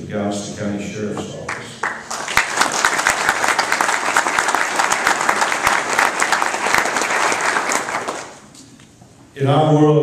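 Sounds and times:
audience applauding: 1.5s - 8.5s.

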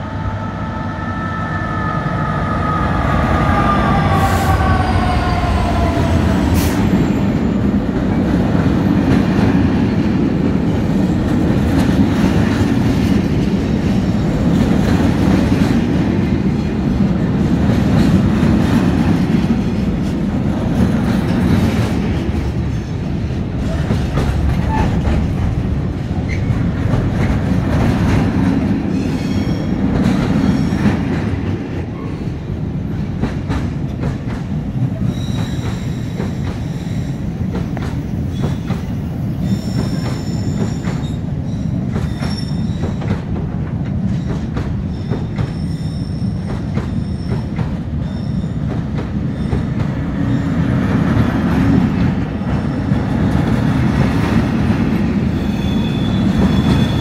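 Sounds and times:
freight train wagons rumbling: 0.0s - 57.0s
high wheel squeal: 55.4s - 57.0s.

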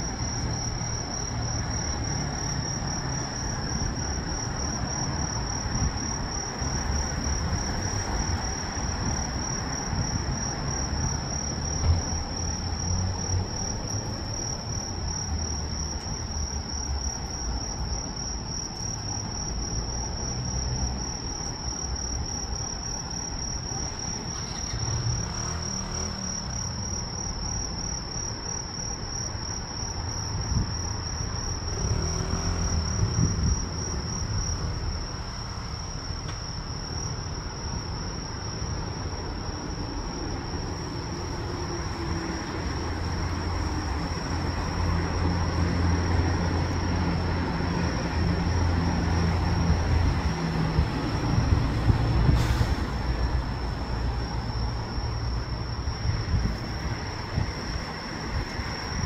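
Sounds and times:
crickets trilling: 0.0s - 59.0s.

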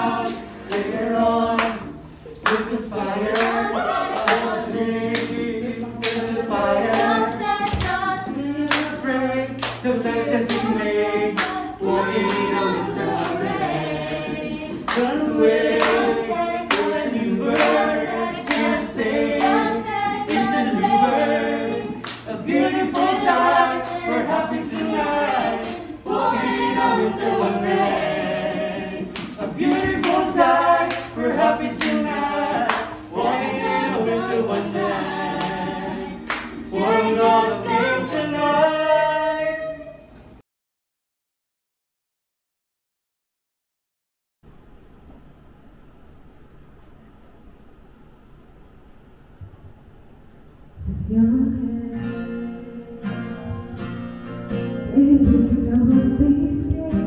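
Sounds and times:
group singing a cappella: 0.0s - 40.3s
hand claps: 0.2s - 1.0s, 1.6s - 9.0s, 9.6s - 19.7s, 22.0s - 24.1s, 24.7s - 26.8s, 28.2s - 33.0s, 33.6s - 36.6s.

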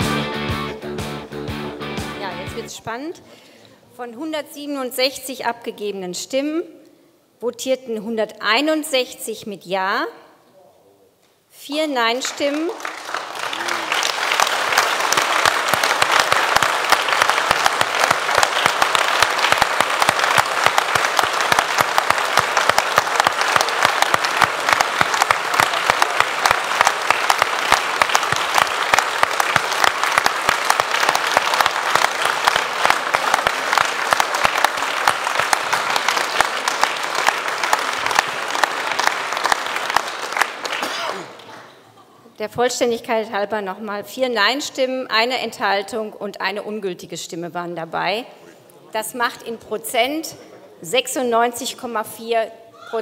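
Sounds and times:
crowd applauding: 0.0s - 2.6s, 12.1s - 41.8s.

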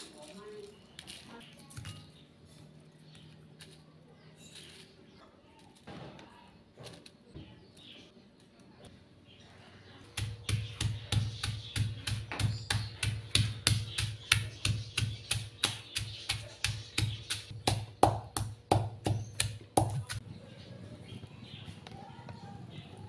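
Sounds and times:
stone pestle pounding in mortar: 10.1s - 20.2s.

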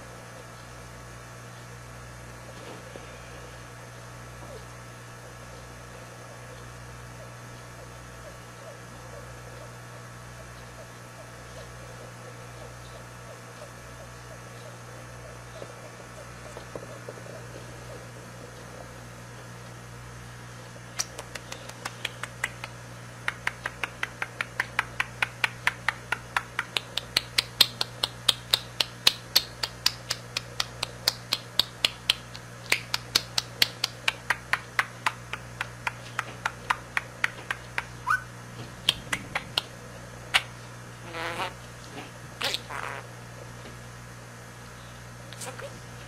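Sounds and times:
steady low hum: 0.0s - 46.0s
budgie clicking: 21.0s - 38.2s
budgie chattering calls: 37.6s - 39.7s, 42.4s - 43.1s.

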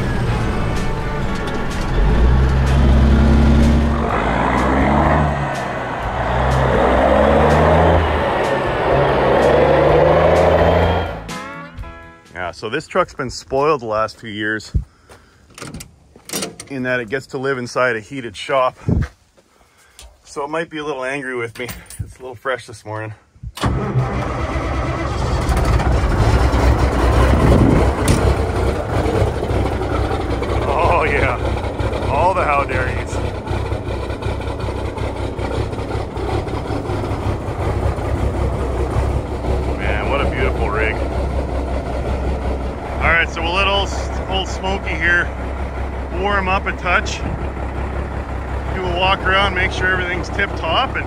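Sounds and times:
truck diesel engine running: 0.0s - 12.0s, 23.6s - 51.0s
road noise: 0.0s - 20.7s, 23.6s - 51.0s.

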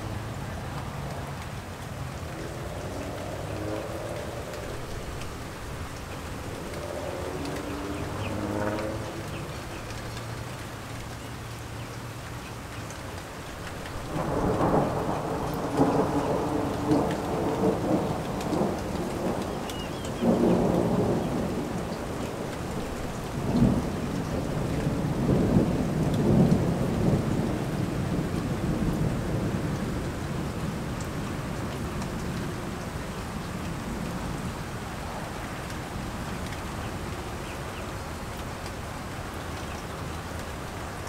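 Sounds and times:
steady rain falling: 0.0s - 41.0s
thunder rumbling: 14.0s - 32.4s.

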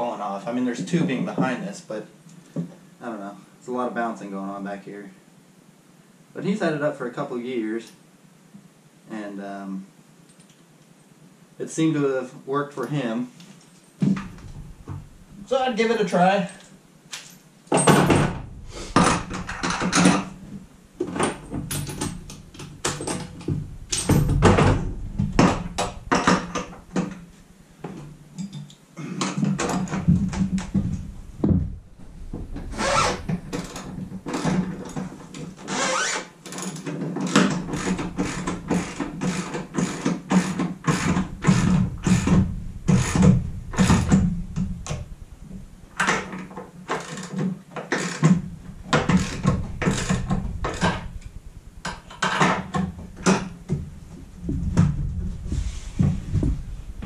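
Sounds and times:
metal hardware knocking: 17.7s - 27.3s, 37.3s - 46.4s, 48.2s - 57.0s
hand ratchet clicking: 35.8s - 44.2s.

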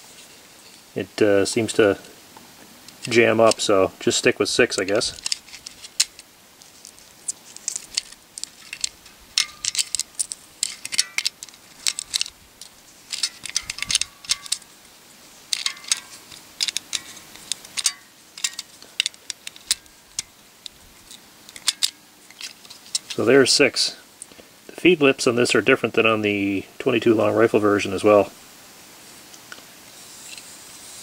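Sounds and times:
cartridges clicking into magazine: 7.3s - 14.7s, 15.5s - 23.2s.

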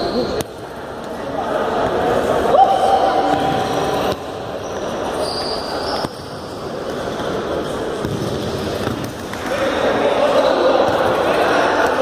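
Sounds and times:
shoes squeaking on court: 3.3s - 9.2s
ball kicked and bouncing: 8.0s - 9.4s.

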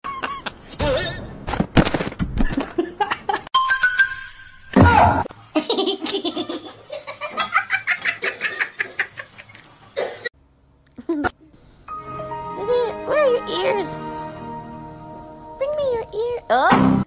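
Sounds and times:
person laughing hard: 0.0s - 0.6s.

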